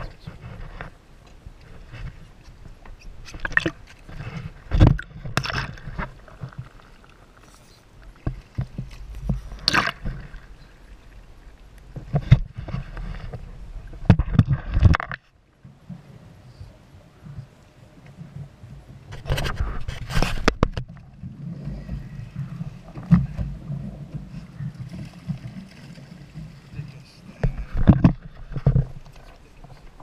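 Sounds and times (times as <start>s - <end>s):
water slapping boat hull: 0.0s - 30.0s.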